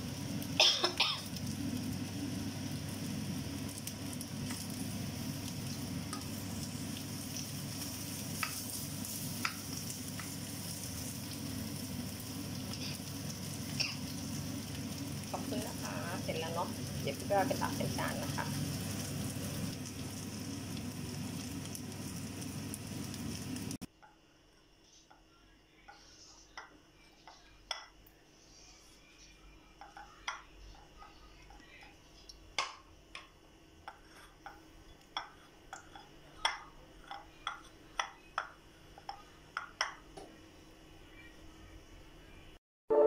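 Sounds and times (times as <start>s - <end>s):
food sizzling in a pan: 0.0s - 23.9s
spatula tapping a plate: 9.4s - 10.4s, 25.9s - 28.0s, 29.8s - 30.9s, 32.6s - 33.3s, 33.9s - 40.3s.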